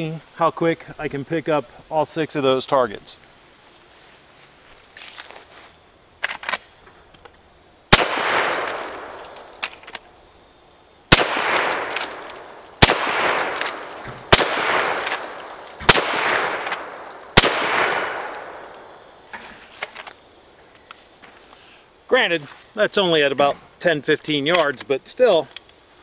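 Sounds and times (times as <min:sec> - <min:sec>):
shotgun shots with echo: 0:07.9 - 0:09.4, 0:11.1 - 0:19.0.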